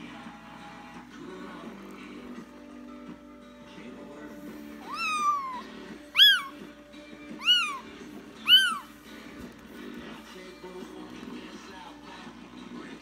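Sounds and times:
background music: 0.0 - 13.0
kitten meowing: 4.8 - 6.6, 7.4 - 8.9.

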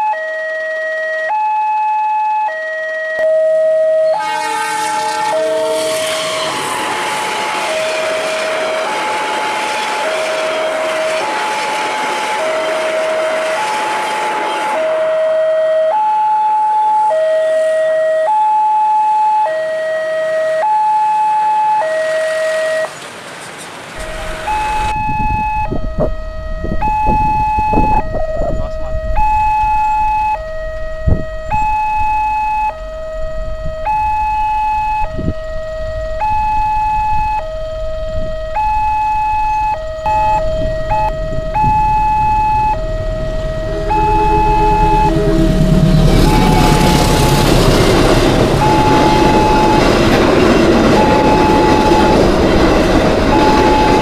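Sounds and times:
two-tone level crossing alarm: 0.0 - 22.9, 24.0 - 54.0
train horn: 3.2 - 16.2, 16.8 - 18.2, 24.0 - 54.0
passenger train rumbling past: 3.2 - 18.3, 21.8 - 54.0
low rumbling noise: 24.0 - 54.0.

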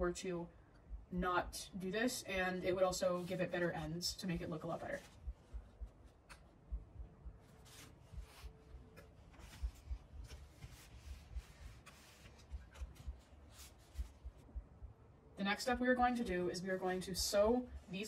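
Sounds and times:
fabric rustling and rubbing: 2.8 - 6.6, 7.3 - 14.5
soft taps and low thumps: 5.1 - 14.8.

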